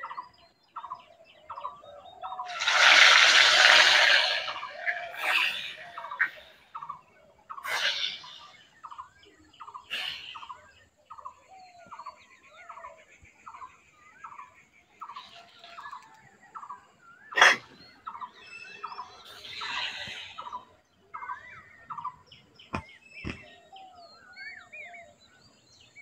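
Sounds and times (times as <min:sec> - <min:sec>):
bird calling: 0:00.0 - 0:25.9
fish frying in hot oil: 0:02.5 - 0:04.3.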